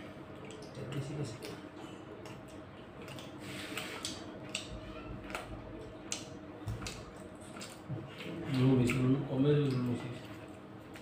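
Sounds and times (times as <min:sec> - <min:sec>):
chicken bones being chewed: 0:00.0 - 0:11.0.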